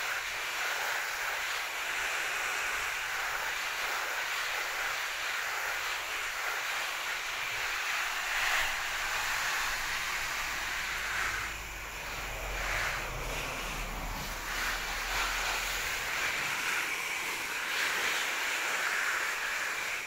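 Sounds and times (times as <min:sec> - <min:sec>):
water spray on leaves: 0:00.0 - 0:20.0.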